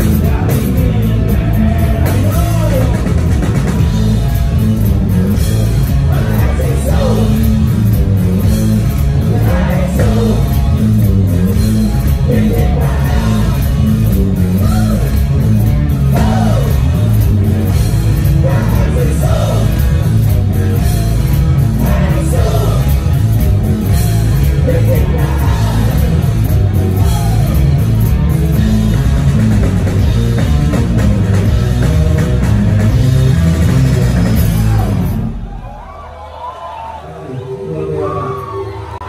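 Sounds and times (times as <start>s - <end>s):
drum kit: 0.0s - 36.0s
electric guitars: 0.0s - 36.0s
live rock band: 0.0s - 36.3s
person singing: 24.4s - 26.3s.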